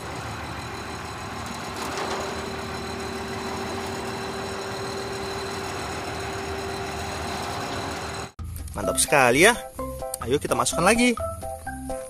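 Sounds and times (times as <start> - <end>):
diesel engine idling: 0.0 - 8.4
steady tone: 0.0 - 8.4.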